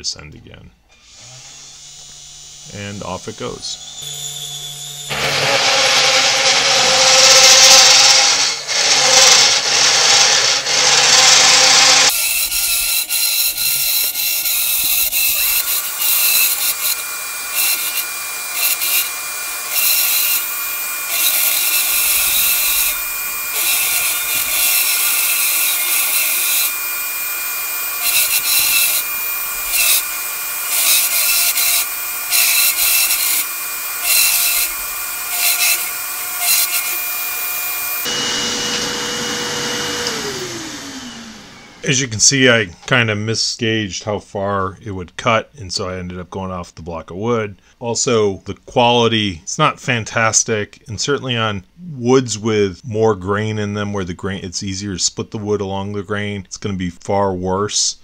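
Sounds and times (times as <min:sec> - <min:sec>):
cnc router cutting wood: 0:01.1 - 0:41.8
thin high whine: 0:01.9 - 0:06.2.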